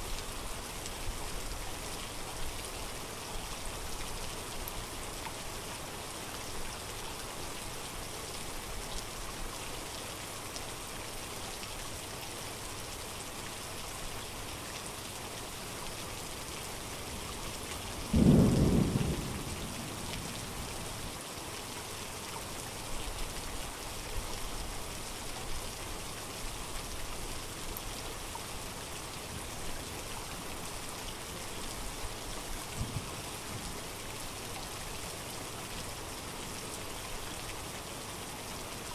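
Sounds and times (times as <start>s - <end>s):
steady rain: 0.0s - 38.9s
low thunder clap: 18.1s - 20.4s.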